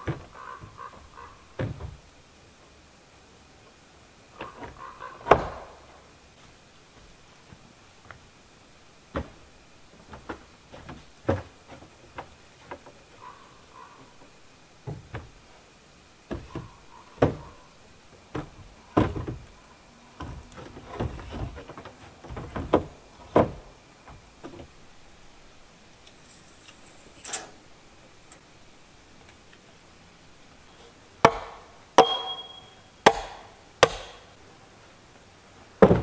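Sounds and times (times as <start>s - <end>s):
wood knocks and thuds: 0.0s - 0.8s, 1.6s - 2.0s, 4.4s - 5.8s, 9.1s - 13.0s, 14.8s - 15.4s, 16.2s - 17.5s, 18.3s - 19.5s, 20.2s - 24.7s, 35.8s - 36.0s.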